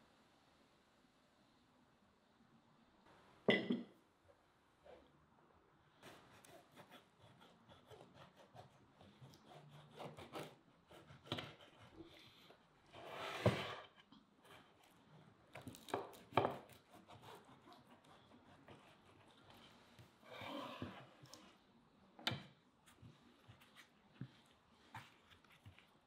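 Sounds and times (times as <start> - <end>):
knife sawing through crust: 6.0 - 12.2, 16.2 - 19.4.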